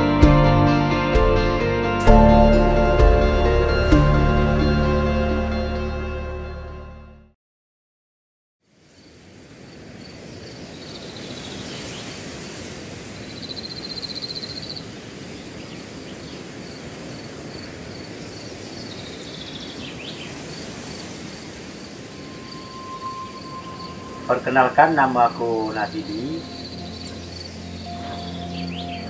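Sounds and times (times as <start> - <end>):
insect chirping: 8.7 - 29.0
steady hiss: 8.7 - 29.0.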